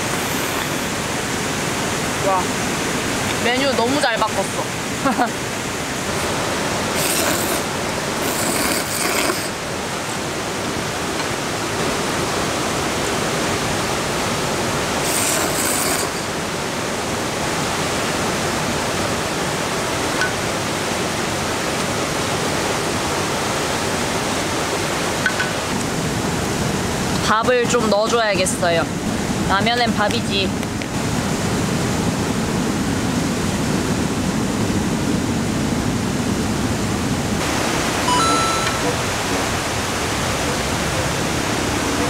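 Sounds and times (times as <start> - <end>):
stream rushing: 0.0 - 42.0
slurping noodles: 6.9 - 9.6, 15.0 - 16.4.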